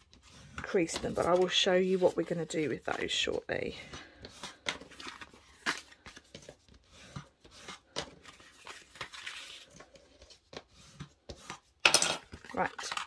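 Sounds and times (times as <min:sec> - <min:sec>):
paper rustling and sliding: 0:00.0 - 0:03.3, 0:04.0 - 0:11.6.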